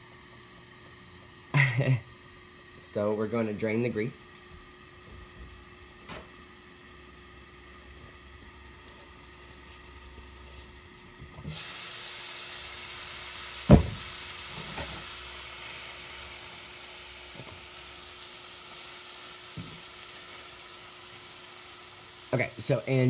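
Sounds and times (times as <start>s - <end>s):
meat sizzling in a frying pan: 4.7s - 23.0s
knocks: 13.7s - 14.0s.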